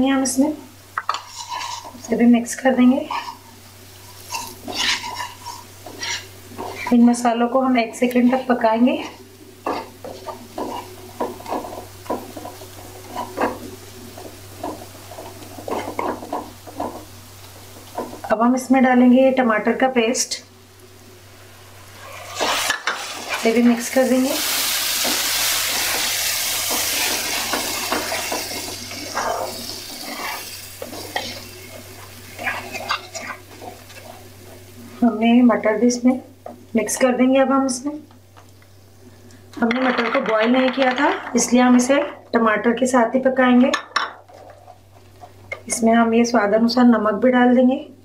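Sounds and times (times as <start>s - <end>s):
faint sizzle: 0.0s - 48.0s
wooden spatula scraping pan: 1.1s - 2.1s, 3.0s - 3.5s, 4.1s - 7.0s, 9.6s - 17.1s, 25.0s - 34.7s.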